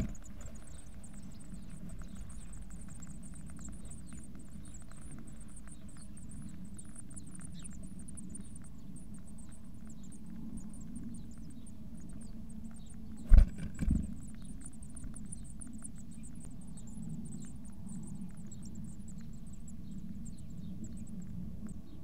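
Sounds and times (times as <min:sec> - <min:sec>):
steady low hum: 0:00.0 - 0:22.0
scratching and rustling in nest: 0:13.2 - 0:14.3.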